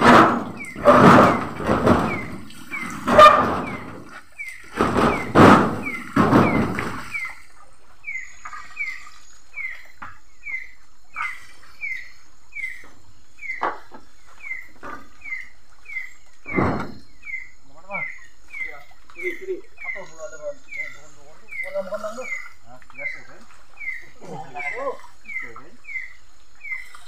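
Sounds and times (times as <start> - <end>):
sharp knocks: 0.0 - 4.1, 4.7 - 7.3, 16.5 - 17.0.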